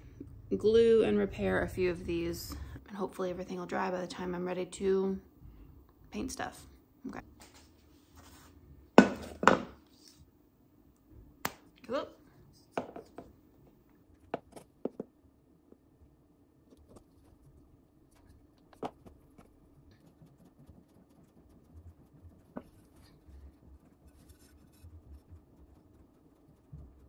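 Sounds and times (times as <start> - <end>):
faint scratching: 16.7 - 27.0.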